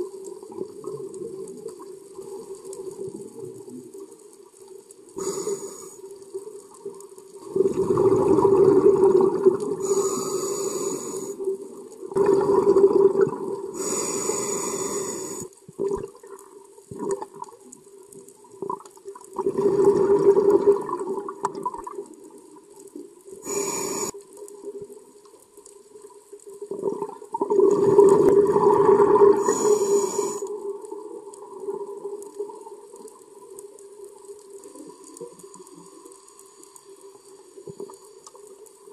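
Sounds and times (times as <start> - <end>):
faint steady hum: 0.0 - 38.9
diver exhaust bubbling: 7.6 - 10.1.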